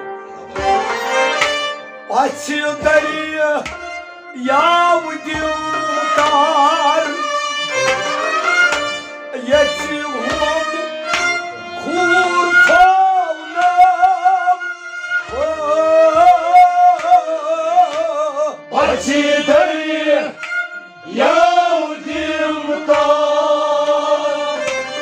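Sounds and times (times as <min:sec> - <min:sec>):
bowed string instrument: 0:00.0 - 0:25.0
man singing: 0:02.1 - 0:03.7, 0:04.3 - 0:07.5, 0:09.3 - 0:11.1, 0:11.7 - 0:20.4.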